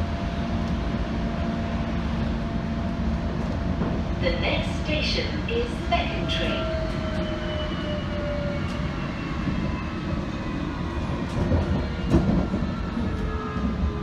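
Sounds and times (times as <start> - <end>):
train wheels rumbling on rail: 0.0 - 14.0
train clunk: 3.7 - 4.1, 11.1 - 13.3.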